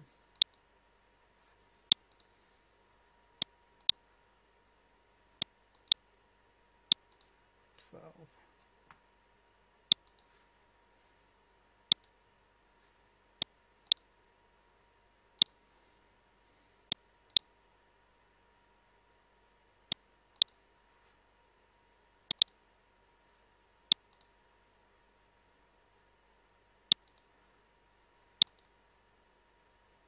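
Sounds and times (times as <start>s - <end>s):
faint steady hum: 0.0s - 30.0s
mouse button clicks: 22.3s - 22.6s.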